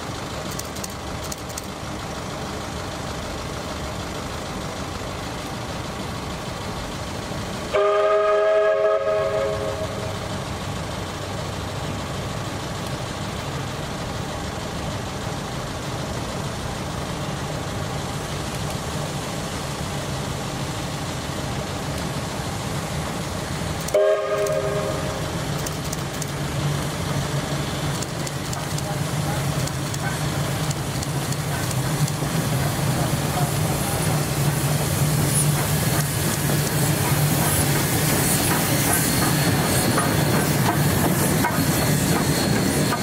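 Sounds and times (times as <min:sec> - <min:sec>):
train running: 0:00.0 - 0:43.0
steam locomotive chime whistle: 0:07.7 - 0:10.2, 0:23.9 - 0:25.2.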